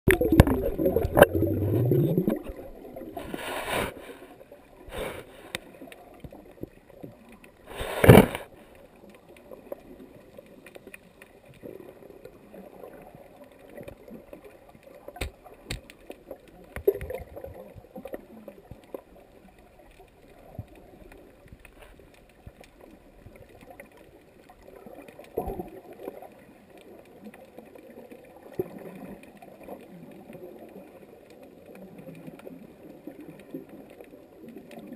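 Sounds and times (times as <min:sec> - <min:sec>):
water churning and gurgling: 0:00.1 - 0:34.9
underwater hiss: 0:00.7 - 0:05.9, 0:07.6 - 0:08.8
small clicks: 0:13.3 - 0:34.9.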